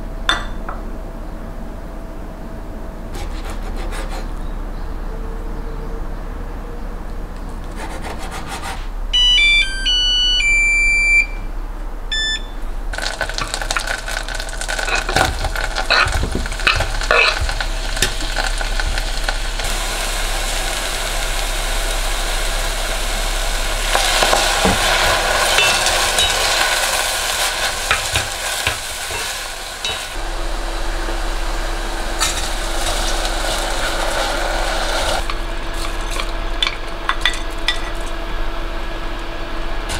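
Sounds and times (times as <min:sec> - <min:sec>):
short electronic beeps: 0:09.2 - 0:11.5, 0:12.1 - 0:12.6
mushrooms sizzling in a pot: 0:12.9 - 0:38.1.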